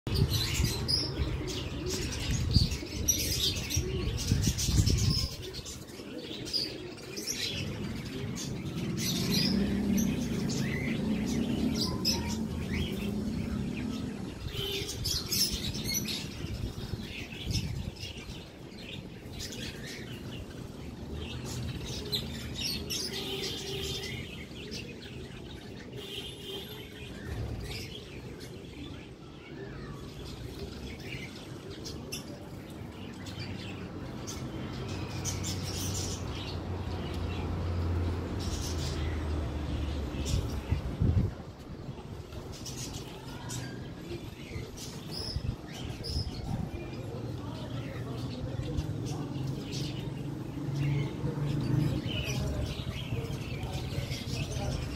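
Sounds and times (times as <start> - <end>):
birds chirping: 0.0 - 54.9.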